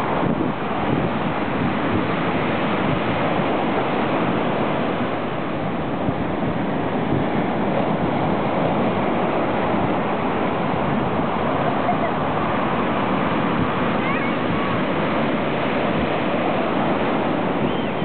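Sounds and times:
ocean waves breaking: 0.0 - 18.0.

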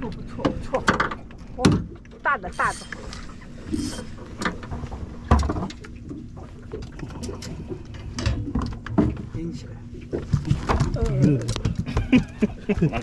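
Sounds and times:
fish flapping thumps and slaps: 10.1 - 13.0.

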